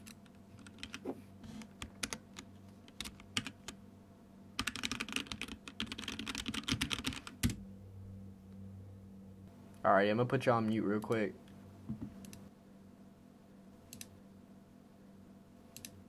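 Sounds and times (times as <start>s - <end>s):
computer keyboard typing: 0.0s - 1.0s, 1.6s - 3.8s, 4.6s - 7.6s.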